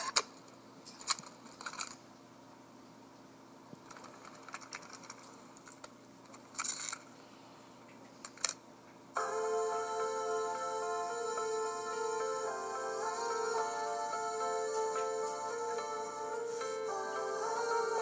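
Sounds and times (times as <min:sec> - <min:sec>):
music through computer speakers: 0:09.2 - 0:18.0.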